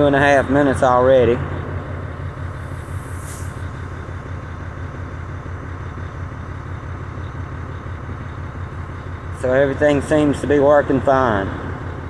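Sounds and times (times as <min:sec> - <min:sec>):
diesel truck engine idling: 0:00.0 - 0:12.0
brief hiss: 0:02.5 - 0:04.0.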